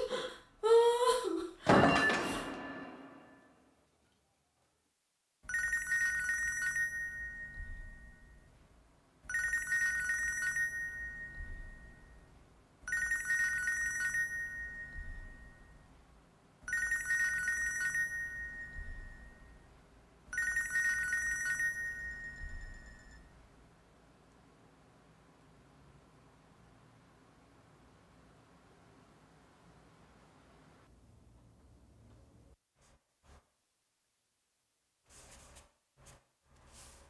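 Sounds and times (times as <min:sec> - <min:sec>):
mobile phone alarm ringtone: 0:05.5 - 0:08.4, 0:09.3 - 0:12.1, 0:12.9 - 0:15.8, 0:16.7 - 0:19.5, 0:20.3 - 0:23.3.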